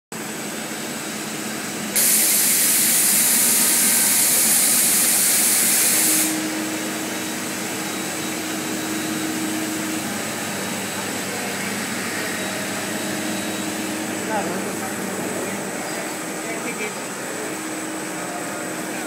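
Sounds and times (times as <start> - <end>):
machine humming: 0.2 - 19.0
loud hiss: 1.9 - 7.2.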